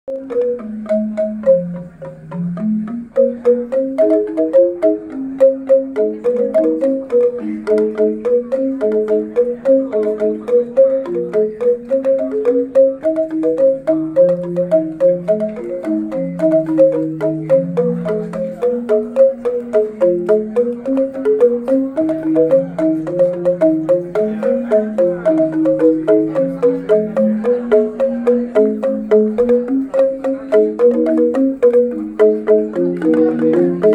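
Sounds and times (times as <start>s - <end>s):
bamboo xylophone melody: 0.1s - 33.9s.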